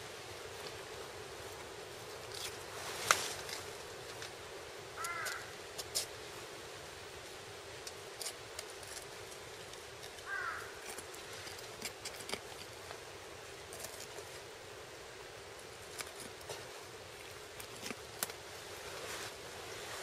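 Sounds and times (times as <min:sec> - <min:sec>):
background hiss: 0:00.0 - 0:20.0
knife and gloved hands rustling: 0:07.8 - 0:14.5, 0:15.7 - 0:20.0.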